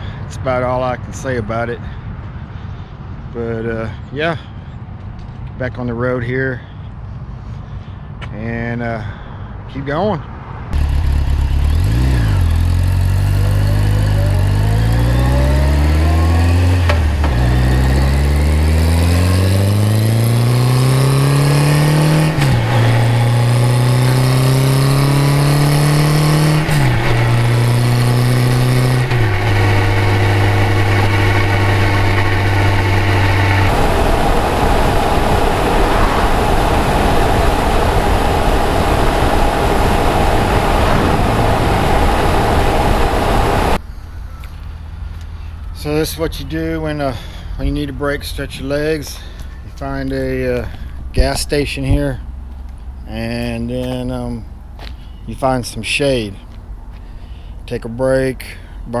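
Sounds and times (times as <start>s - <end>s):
wind and road noise: 0.0s - 59.0s
motorcycle engine accelerating: 10.8s - 43.8s.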